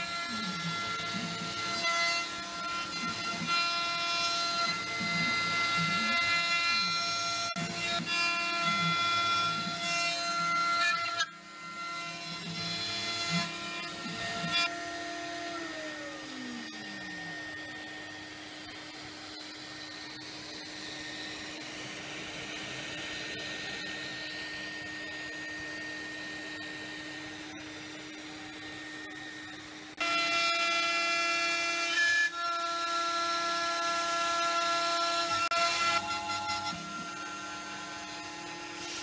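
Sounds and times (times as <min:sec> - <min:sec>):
milling machine cutting wood: 0:00.0 - 0:39.0.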